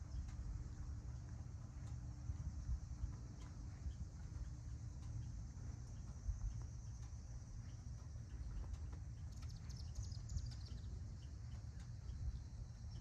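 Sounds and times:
footsteps on pavement: 0.0s - 10.3s
low rumble on microphone: 0.0s - 13.0s.

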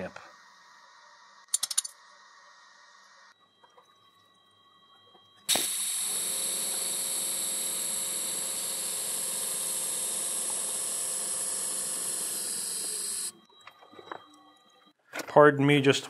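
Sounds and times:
welding arc hiss and buzz: 5.5s - 13.4s.

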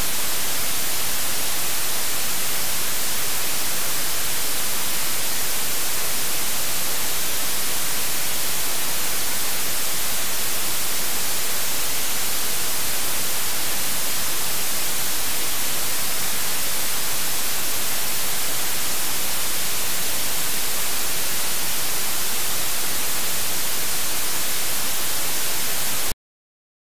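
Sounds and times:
loud static hiss: 0.0s - 26.2s.

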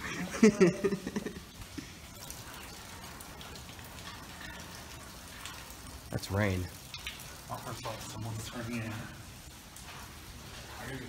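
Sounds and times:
light rain falling: 0.0s - 11.0s.

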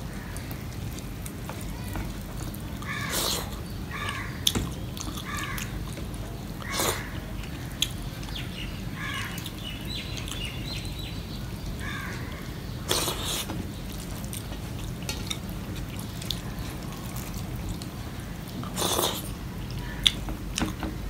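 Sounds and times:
crow cawing: 2.8s - 3.2s, 3.9s - 4.4s, 5.2s - 5.8s, 9.0s - 9.4s, 11.8s - 12.4s.

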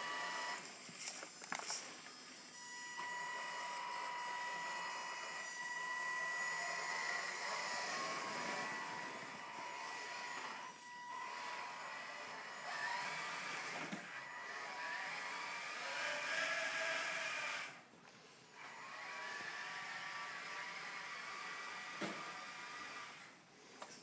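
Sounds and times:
electric motor whining: 2.6s - 17.8s.

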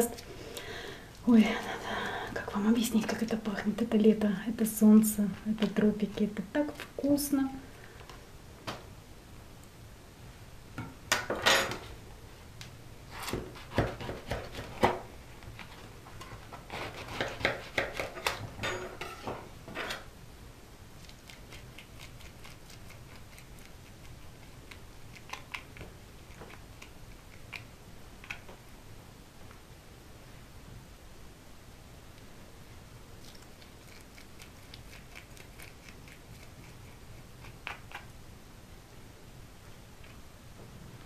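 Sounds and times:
teaspoon scraping fruit shell: 33.2s - 38.1s.

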